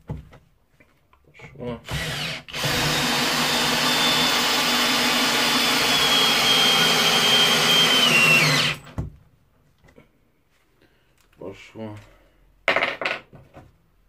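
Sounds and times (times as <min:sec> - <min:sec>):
cordless drill whining: 0:01.9 - 0:08.9.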